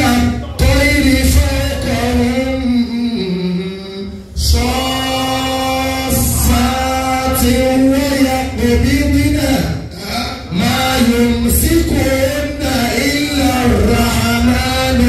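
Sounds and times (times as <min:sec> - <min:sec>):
man chanting into a microphone: 0:00.0 - 0:15.0.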